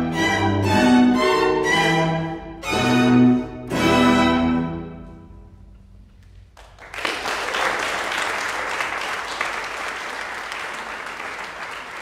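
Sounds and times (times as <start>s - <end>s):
string quartet chord: 0.0s - 5.5s
audience applause: 6.6s - 12.0s.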